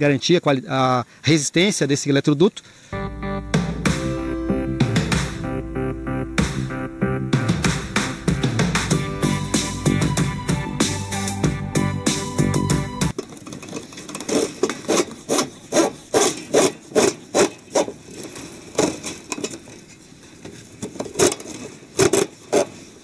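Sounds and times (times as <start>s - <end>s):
plastic conduit scraping on blocks: 13.1s - 23.0s.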